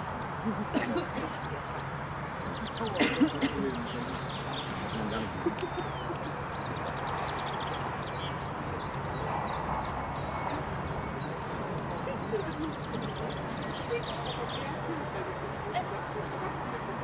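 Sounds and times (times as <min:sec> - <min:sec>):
steady outdoor rush: 0:00.0 - 0:17.0
small birds chirping: 0:00.3 - 0:17.0.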